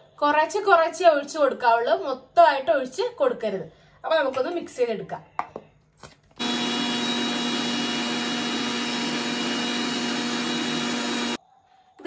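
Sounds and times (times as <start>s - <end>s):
mixer grinder motor whirring: 6.4s - 11.4s.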